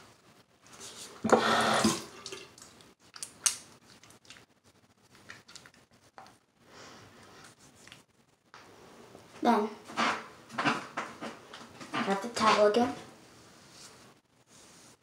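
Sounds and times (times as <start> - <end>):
water splashing in sink: 1.2 - 4.4
wet hands rubbing face: 7.2 - 8.2.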